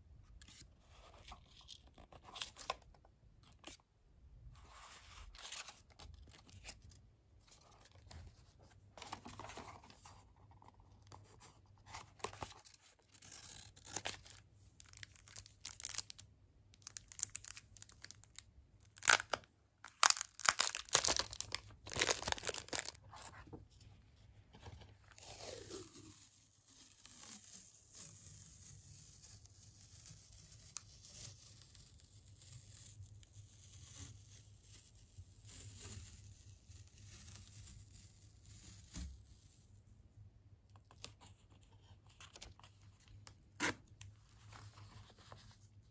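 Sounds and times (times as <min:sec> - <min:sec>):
plastic film crinkling and tearing: 0:12.2 - 0:23.1.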